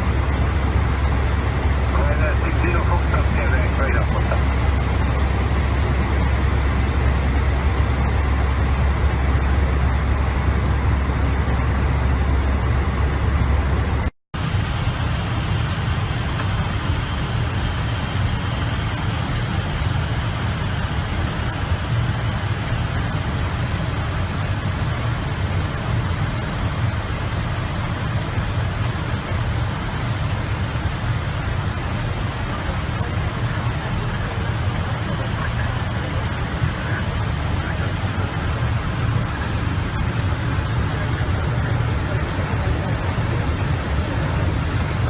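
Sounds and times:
airliner cockpit rushing noise: 0.0 - 14.1, 32.6 - 45.0
deep hum: 0.0 - 19.4.

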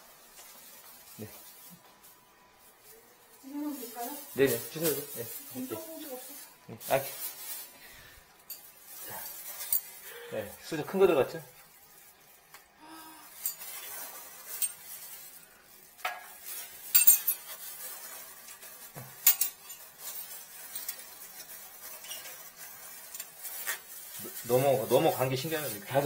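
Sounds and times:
metal spoons scraping porcelain bowl: 13.4 - 14.8, 16.2 - 25.4.

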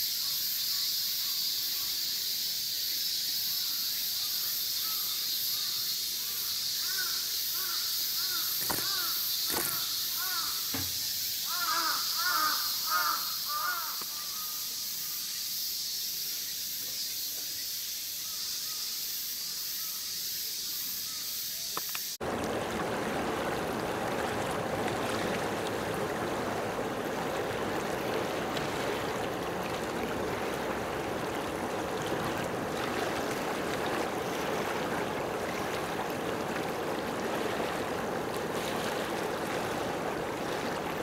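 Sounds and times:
waves washing: 22.2 - 41.0.

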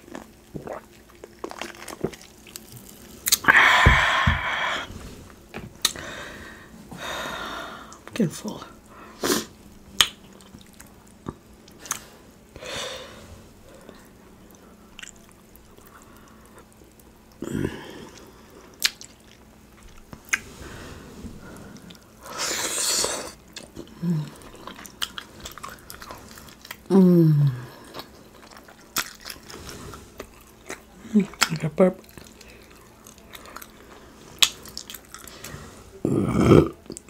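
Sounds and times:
wet chewing and lip smacking: 10.0 - 12.1, 14.9 - 17.1, 18.2 - 20.4, 23.4 - 26.9, 27.9 - 29.6
person humming mmm: 22.4 - 24.6, 26.9 - 28.0.

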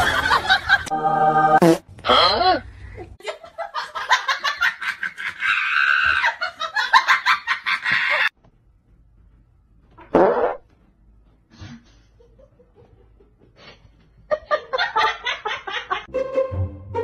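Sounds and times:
person laughing in rapid bursts: 3.2 - 8.3.

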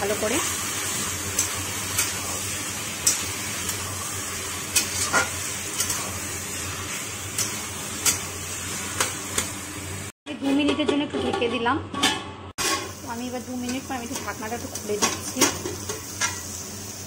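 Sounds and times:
frying sizzle: 0.0 - 10.2, 12.6 - 17.0
spatula scraping metal pan: 4.7 - 9.1.

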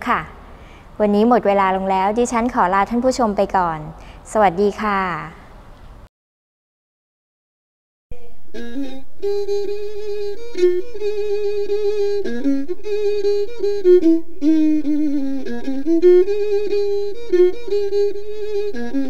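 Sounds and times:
solo instrument melody: 8.1 - 19.0
low steady hum: 8.2 - 19.0.

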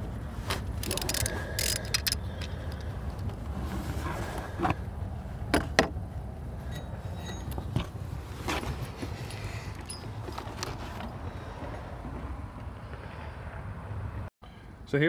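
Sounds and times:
ratchet and tools clinking: 0.8 - 3.4, 6.6 - 7.8, 9.3 - 10.8.

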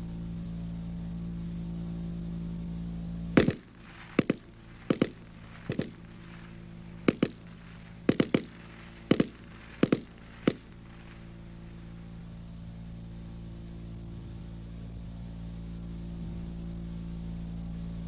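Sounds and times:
rifle firing bursts: 3.4 - 11.4.

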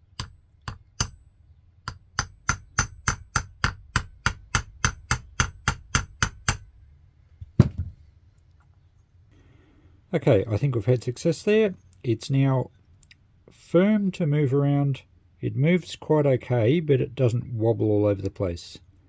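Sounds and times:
small hammer tapping a punch: 0.0 - 6.7.

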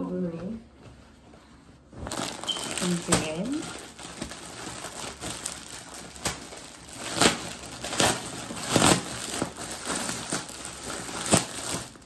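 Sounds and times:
plastic packaging crinkling: 2.0 - 12.0.

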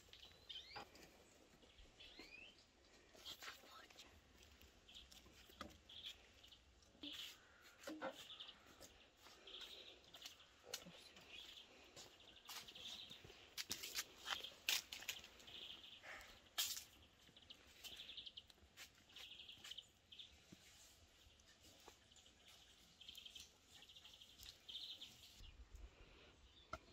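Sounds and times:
dry sticks clicking and snapping: 3.9 - 6.9.

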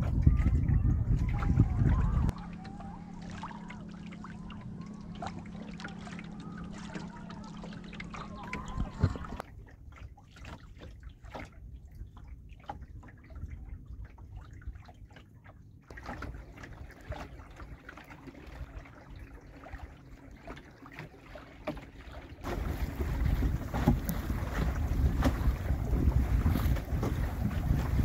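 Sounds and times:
low steady rumble: 0.0 - 9.9, 22.4 - 28.0
water lapping along a hull: 0.0 - 28.0.

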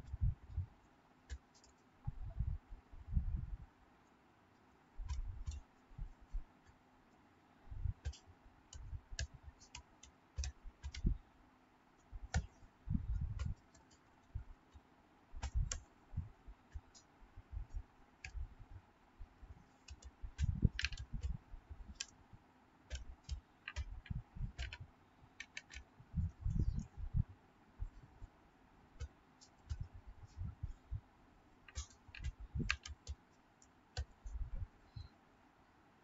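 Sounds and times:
keyboard typing: 8.0 - 11.2, 15.4 - 15.9, 19.7 - 22.2, 22.9 - 27.0, 29.0 - 30.8, 31.6 - 34.5.

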